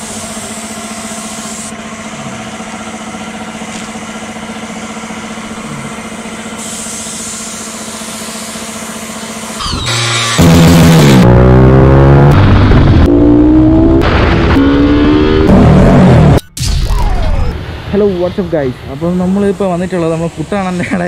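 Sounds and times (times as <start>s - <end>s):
paint spray gun hissing: 0.0s - 1.8s, 6.6s - 10.3s
air compressor humming: 0.0s - 11.1s.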